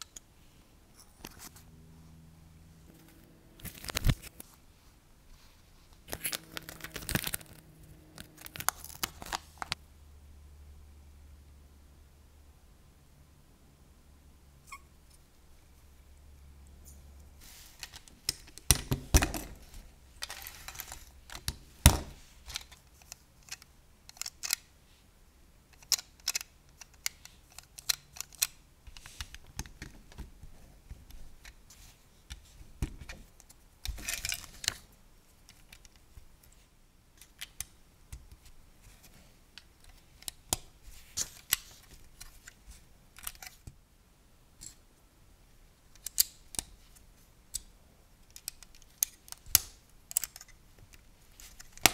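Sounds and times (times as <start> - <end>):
plastic pieces being handled: 6.0 - 7.6, 17.5 - 24.6.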